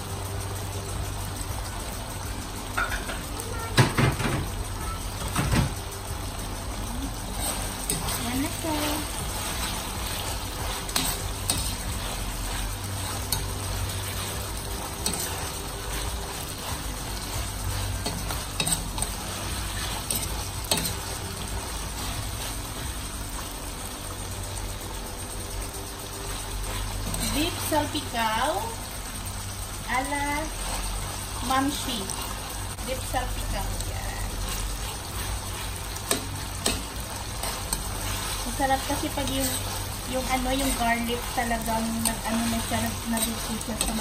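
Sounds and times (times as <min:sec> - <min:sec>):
meat sizzling in sauce: 0:00.0 - 0:44.0
metal spoon scraping pan: 0:07.3 - 0:21.2, 0:34.3 - 0:44.0.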